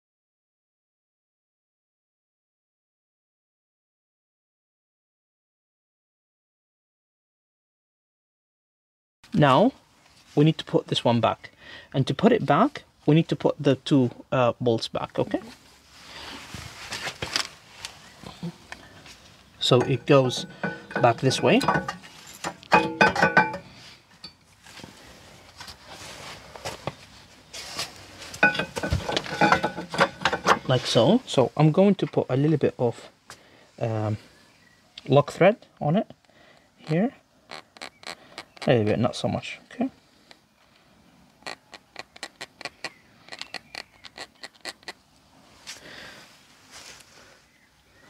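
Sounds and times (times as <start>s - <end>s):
handling rustle: 15.4s - 31.1s
metal clinks and scrapes: 19.6s - 24.5s, 28.4s - 31.0s.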